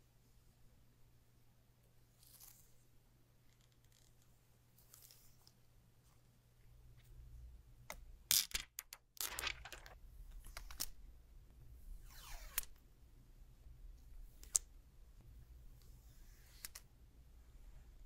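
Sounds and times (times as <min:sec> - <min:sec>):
plastic film being peeled: 0:09.2 - 0:10.0.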